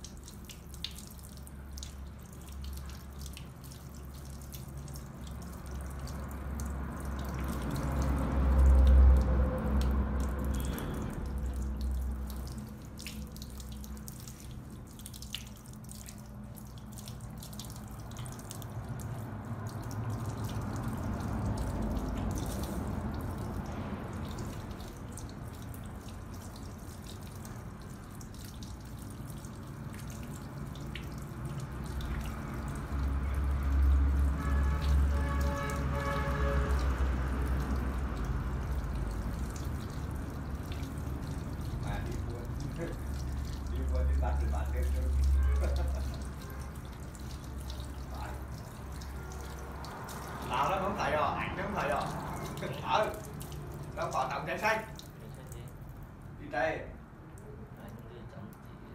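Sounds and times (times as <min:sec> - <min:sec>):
water trickling into basin: 0:00.0 - 0:58.9.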